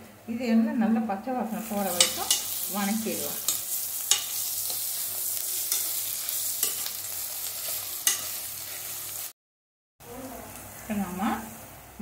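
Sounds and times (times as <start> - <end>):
vegetables sizzling in oil: 1.4 - 9.4, 10.2 - 12.0
spoon clinking against pan: 1.9 - 2.7, 3.4 - 4.8, 6.6 - 7.0, 8.0 - 8.4.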